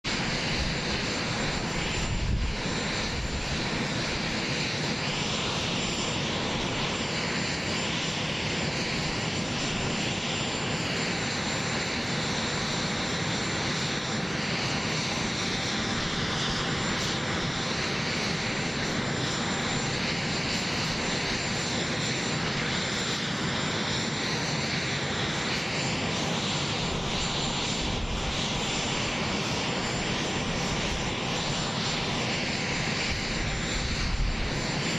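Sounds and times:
high turbine whine: 0.0s - 34.9s
jet turbine rushing hiss: 0.0s - 34.9s.

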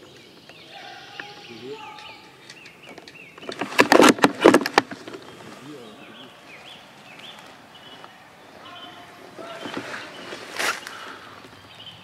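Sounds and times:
sharp clicks and rustling: 0.0s - 5.6s
small birds chirping: 0.0s - 12.0s.

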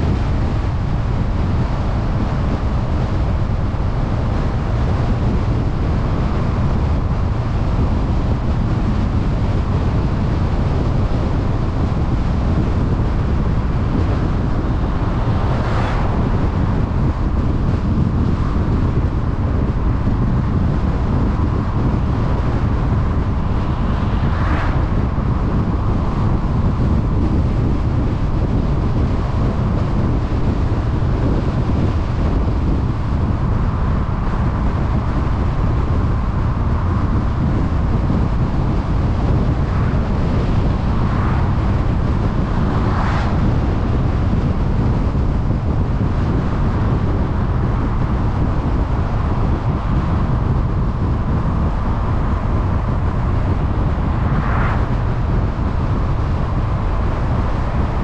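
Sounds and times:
road and tyre rumble: 0.0s - 58.0s
wind noise on microphone: 0.0s - 58.0s
passing whooshes: 14.2s - 18.1s, 23.0s - 26.5s, 53.6s - 55.4s.

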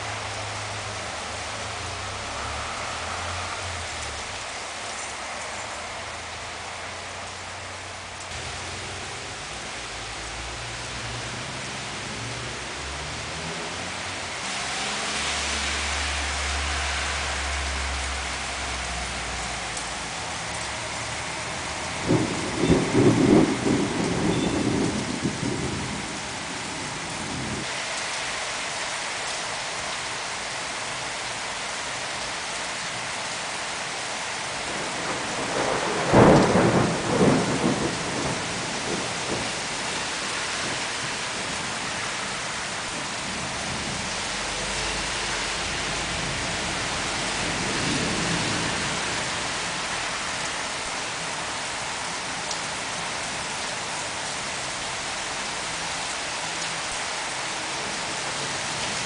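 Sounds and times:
steady rain falling: 0.0s - 59.0s
thunder rumbling: 21.5s - 27.7s, 34.7s - 41.9s.

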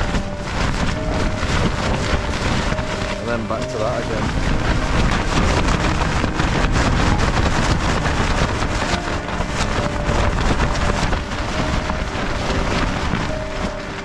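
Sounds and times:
tent fabric flapping: 0.0s - 14.0s
wind buffeting microphone: 0.0s - 14.0s
wind rushing: 0.0s - 14.0s.

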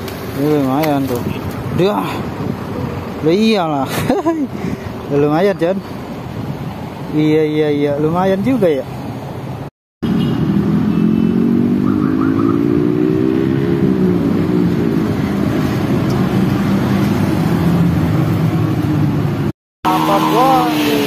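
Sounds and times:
motorcycles and cars passing: 0.0s - 21.0s
engine revving: 10.0s - 18.1s, 19.8s - 21.0s.

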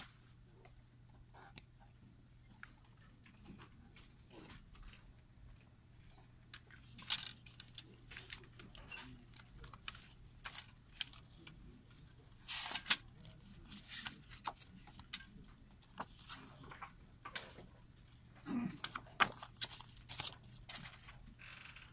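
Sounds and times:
paper rustling: 6.8s - 17.7s, 18.8s - 21.4s.

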